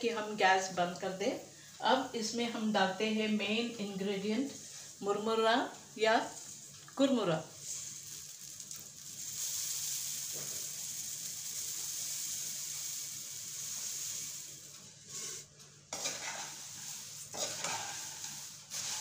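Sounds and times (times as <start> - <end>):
puffed rice rustling hiss: 4.4 - 19.0
spatula scraping pan: 13.6 - 19.0.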